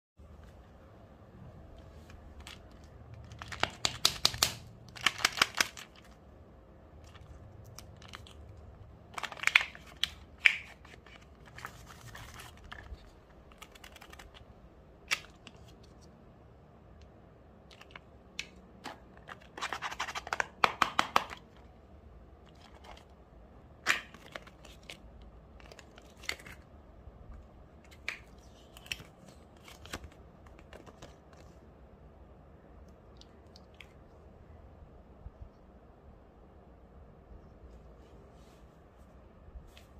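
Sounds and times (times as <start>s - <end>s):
plastic wrapper crinkling and tearing: 2.0s - 6.2s, 7.0s - 14.5s.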